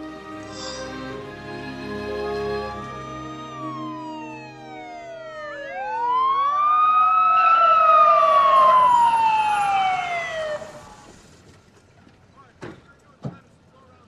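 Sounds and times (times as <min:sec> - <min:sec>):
police siren wailing: 0:00.0 - 0:11.2.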